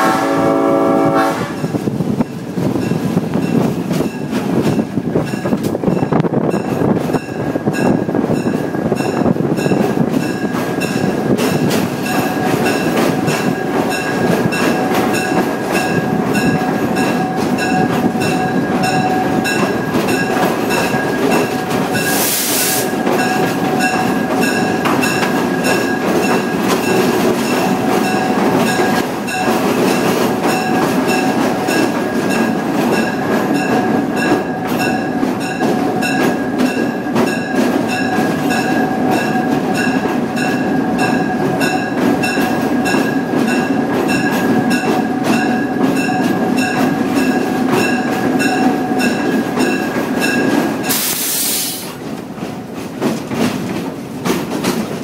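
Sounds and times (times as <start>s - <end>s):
locomotive engine and wheels on rails: 0.0s - 55.0s
brief hiss: 50.9s - 52.0s.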